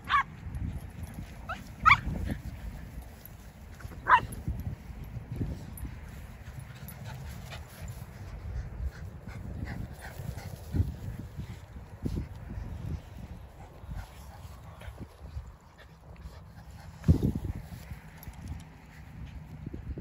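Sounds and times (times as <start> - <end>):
small dog yipping: 1.5 - 2.2, 4.0 - 4.3.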